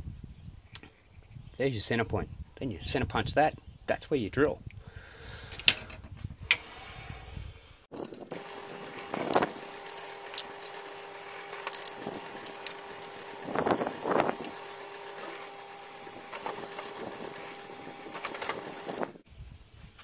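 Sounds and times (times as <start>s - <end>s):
drill bit cutting: 7.9s - 19.2s
drill press motor humming: 7.9s - 19.2s.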